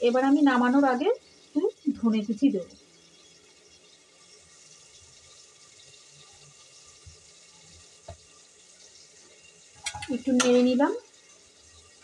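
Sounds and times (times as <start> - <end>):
dal simmering in a metal pan: 0.0 - 12.0.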